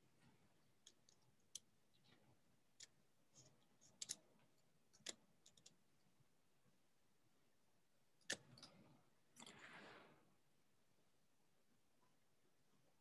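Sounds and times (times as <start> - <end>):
computer mouse clicks: 2.8 - 5.8.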